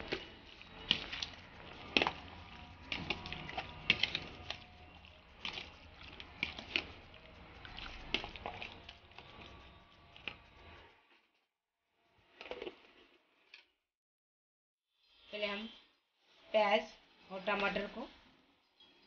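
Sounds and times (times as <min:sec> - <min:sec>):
wet squelching of stirred meat: 0:00.0 - 0:10.9.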